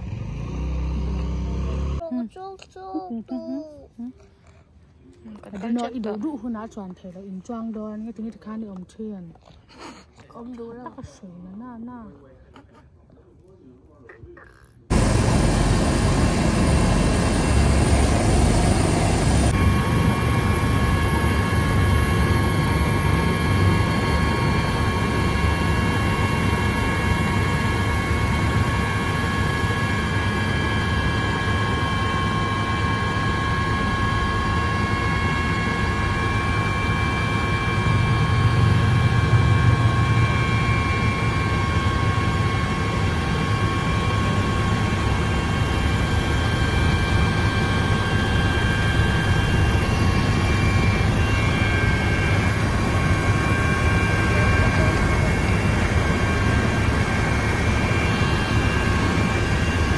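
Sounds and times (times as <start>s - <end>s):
helicopter drone with high whine: 14.9s - 59.9s.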